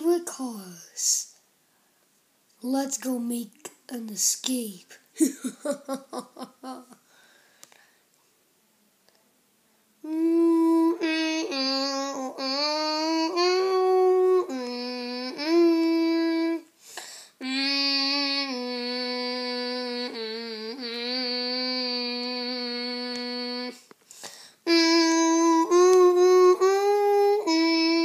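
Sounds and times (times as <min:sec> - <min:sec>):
child singing wordless tune: 0:00.0 - 0:01.4, 0:02.6 - 0:05.0, 0:10.0 - 0:16.7, 0:17.4 - 0:23.9, 0:24.6 - 0:28.0.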